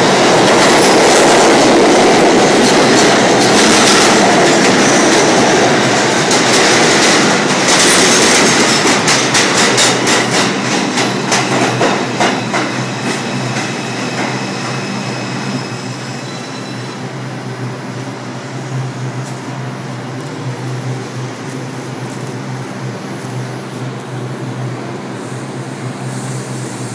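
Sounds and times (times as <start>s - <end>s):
subway wheel and track noise: 0.0s - 26.9s
rail-joint clicks: 2.3s - 14.4s
high wheel squeals: 12.4s - 17.2s.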